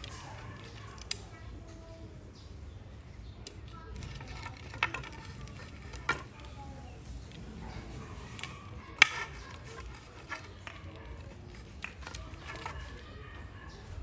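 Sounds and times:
plastic cord handling: 0.0 - 1.4, 3.4 - 7.4, 8.0 - 13.0.

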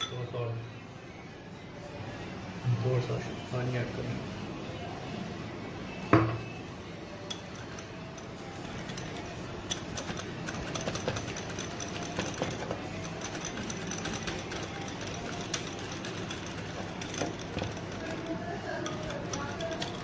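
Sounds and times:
spoon scraping against a bowl: 7.3 - 20.0.

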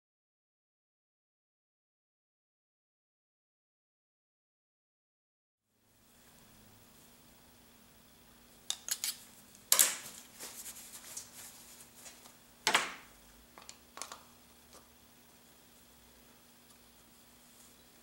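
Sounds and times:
paper towel wiping: 10.1 - 12.3.

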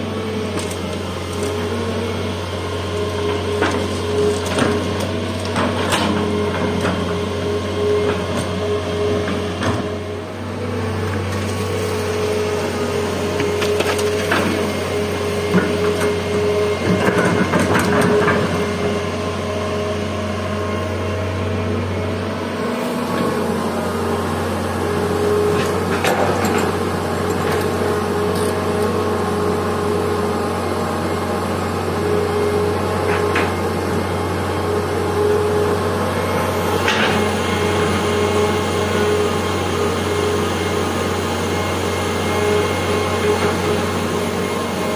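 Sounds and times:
diesel engine running: 0.0 - 44.9.

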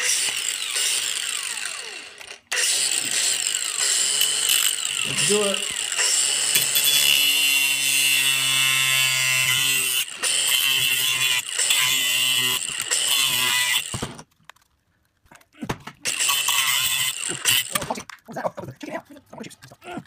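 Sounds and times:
angle grinder cutting plastic: 0.0 - 14.6, 15.6 - 18.4
plastic cracking and clicking: 13.9 - 16.0.

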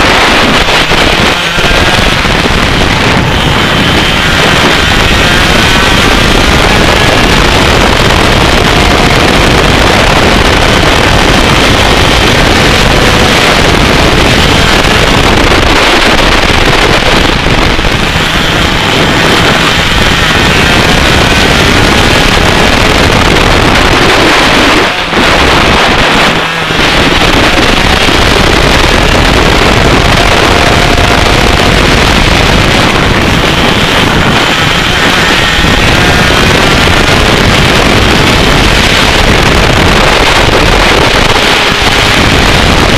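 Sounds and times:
kart engine running hard: 0.0 - 42.9
wind buffeting microphone: 0.0 - 42.9.

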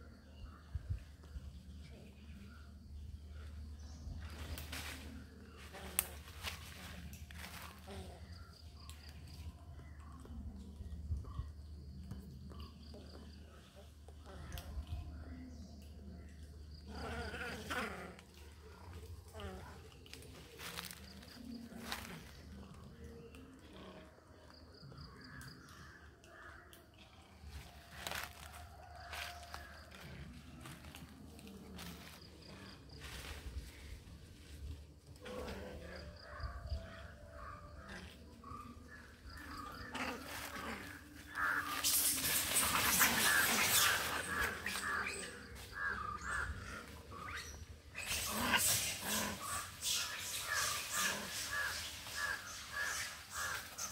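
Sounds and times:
rustling leaves and branches: 0.5 - 11.0, 14.3 - 23.9, 27.3 - 53.9
faint animal calls: 35.1 - 53.9
macaques screeching: 39.8 - 53.9.

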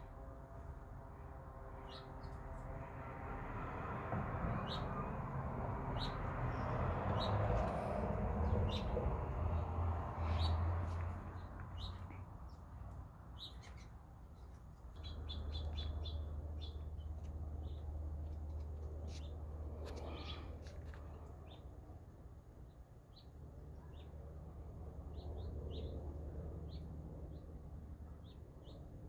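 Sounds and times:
songbirds chirping: 5.9 - 21.9.

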